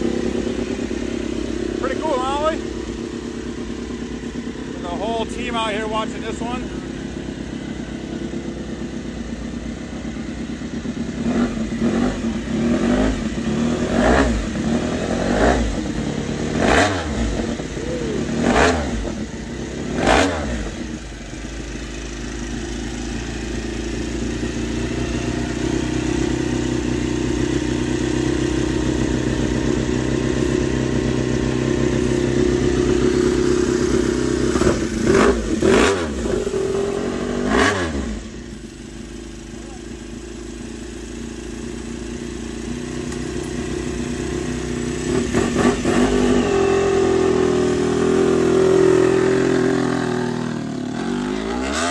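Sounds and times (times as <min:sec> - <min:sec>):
motorcycle engine idling: 0:00.0 - 0:51.7.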